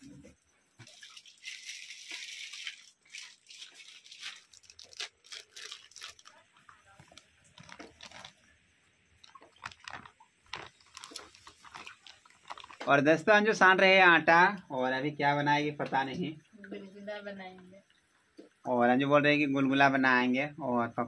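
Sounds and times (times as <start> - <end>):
plastic packets rustling and crinkling: 0.8 - 8.6, 9.2 - 13.0.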